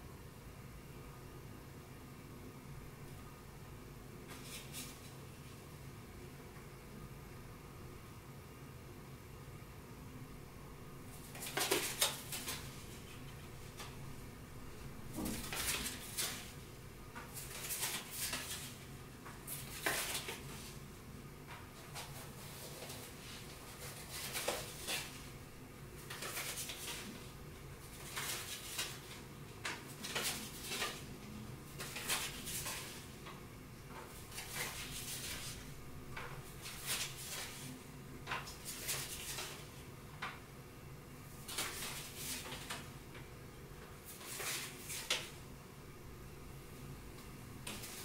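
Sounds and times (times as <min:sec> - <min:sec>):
playing cards clicking and sliding: 0:17.2 - 0:20.7, 0:21.9 - 0:25.3, 0:26.0 - 0:27.3, 0:27.9 - 0:33.2, 0:33.9 - 0:35.6, 0:36.2 - 0:39.7, 0:41.5 - 0:42.9.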